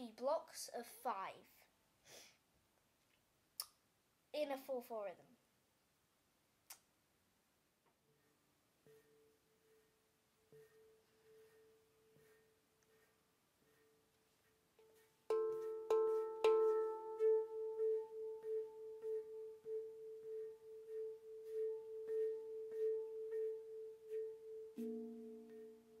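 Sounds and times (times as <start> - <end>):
handpan played by hand: 14.9 - 26.0.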